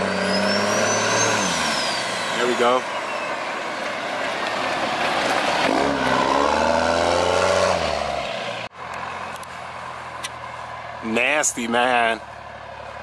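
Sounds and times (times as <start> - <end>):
diesel truck accelerating hard: 0.0 - 13.0.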